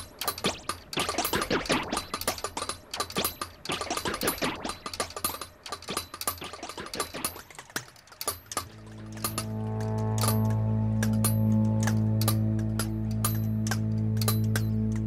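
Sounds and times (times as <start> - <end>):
clock mechanism clicking: 0.0 - 15.0
steady low hum: 8.6 - 15.0.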